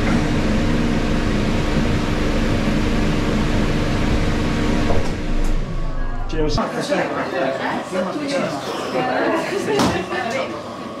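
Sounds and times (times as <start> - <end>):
steady hum: 0.0 - 6.7.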